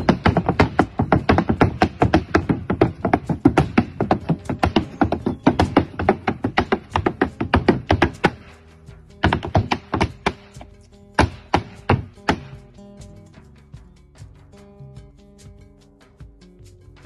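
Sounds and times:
boot stamps on stone: 0:00.0 - 0:08.6, 0:09.2 - 0:12.7
backing music: 0:00.0 - 0:17.0.

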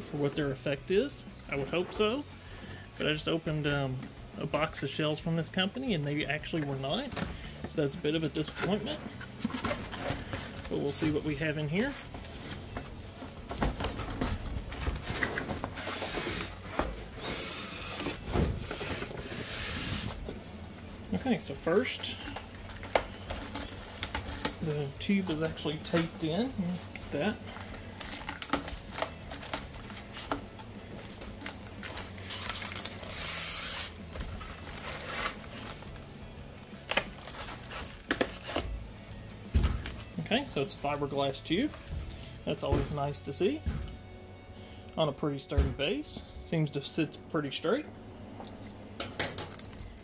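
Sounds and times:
knife cutting packing tape: 0:31.4 - 0:35.5
tape tearing from cardboard: 0:31.8 - 0:35.4.

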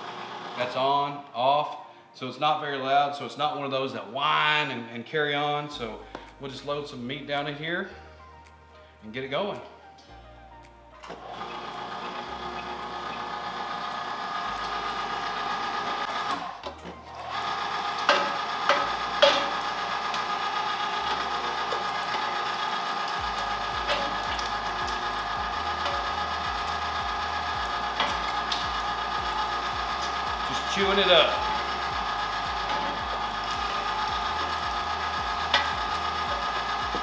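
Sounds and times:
electric meat grinder running: 0:00.0 - 0:00.8, 0:11.1 - 0:37.0.

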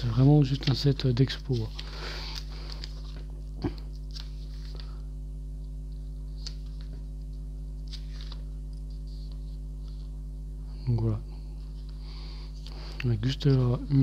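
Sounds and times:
low electrical hum: 0:00.0 - 0:14.0
paper pages rustling: 0:00.4 - 0:05.0, 0:05.6 - 0:10.2.

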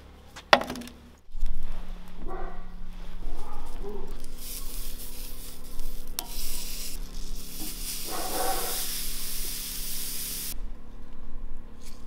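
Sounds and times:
vegetables sizzling on a grill: 0:04.1 - 0:10.6.

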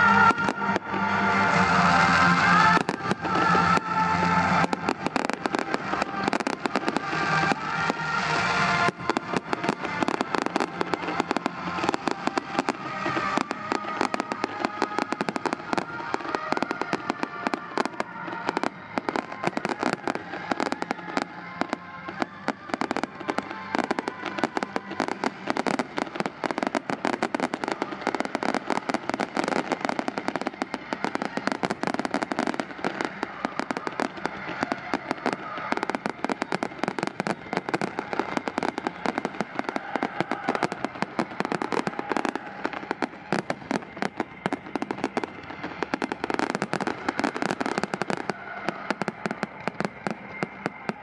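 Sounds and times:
fireworks bangs and crackles: 0:00.0 - 0:51.0.

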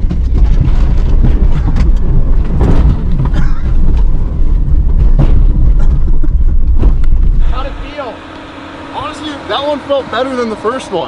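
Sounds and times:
suspension knocks and thumps: 0:00.0 - 0:07.9
vehicle rumbling on dirt track: 0:00.0 - 0:11.0.

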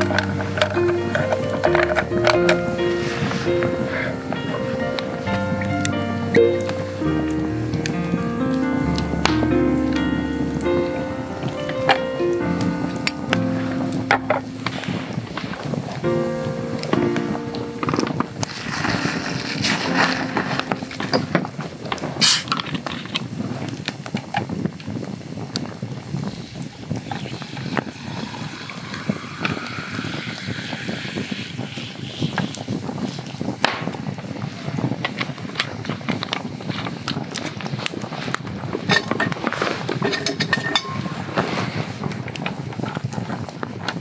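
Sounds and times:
ice crackling: 0:00.0 - 0:23.9
carbonation fizzing: 0:17.2 - 0:24.2, 0:25.2 - 0:35.0
soda water pouring into glass: 0:27.1 - 0:32.0.

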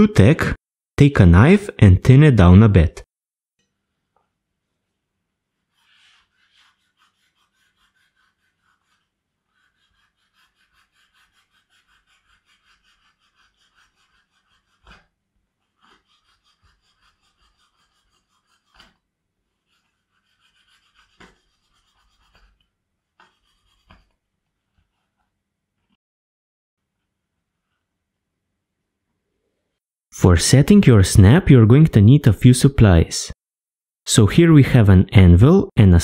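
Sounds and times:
knife scraping leather: 0:05.7 - 0:25.3.

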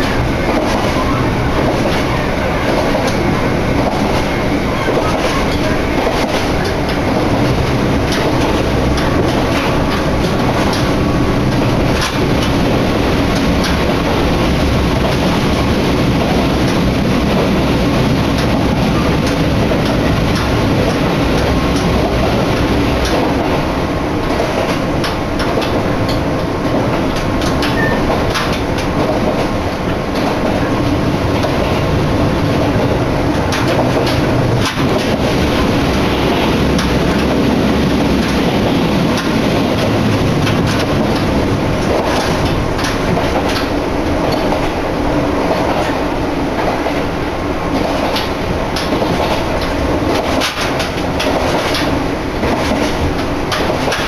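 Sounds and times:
train wheels rumbling on rail: 0:00.0 - 0:54.0
wheels clicking over rail joints: 0:08.0 - 0:12.7, 0:18.3 - 0:23.6, 0:24.2 - 0:31.8, 0:32.6 - 0:35.3, 0:35.9 - 0:44.8, 0:47.7 - 0:54.0.

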